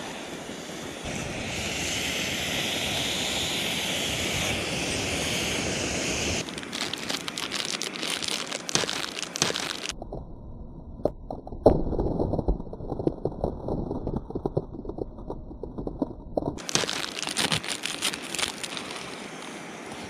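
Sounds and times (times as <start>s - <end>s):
plastic wrapper crinkling and tearing: 6.4s - 10.0s, 12.4s - 19.5s.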